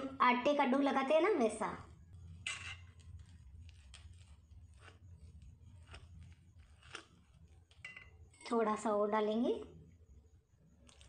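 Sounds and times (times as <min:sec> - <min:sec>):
low steady hum: 0:00.0 - 0:11.0
spoon scraping steel bowl: 0:02.0 - 0:08.6.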